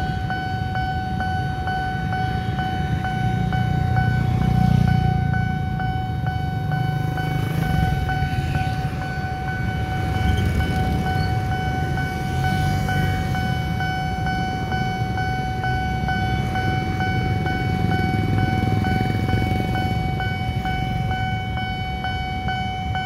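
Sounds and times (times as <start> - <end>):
idling vehicle engines rumble: 0.0 - 23.0
level crossing alarm: 0.0 - 23.0.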